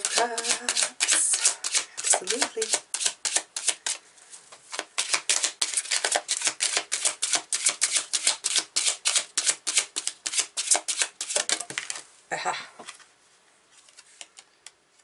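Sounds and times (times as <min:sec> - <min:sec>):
cards being shuffled: 0:00.0 - 0:04.0, 0:04.7 - 0:12.1.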